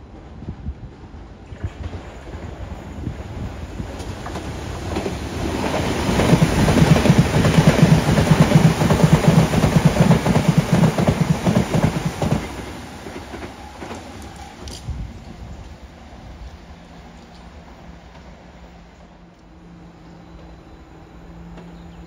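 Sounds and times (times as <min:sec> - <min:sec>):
train wheels clattering over rails: 0:00.0 - 0:15.8.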